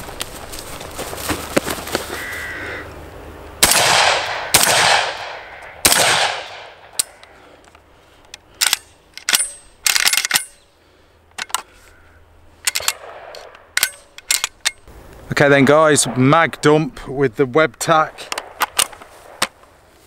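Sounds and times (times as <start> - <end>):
shotgun shots: 3.6 - 7.0, 12.8 - 13.5
metallic clicks and rattles of gun: 6.5 - 10.7, 11.3 - 11.7, 12.6 - 14.9, 17.7 - 19.7.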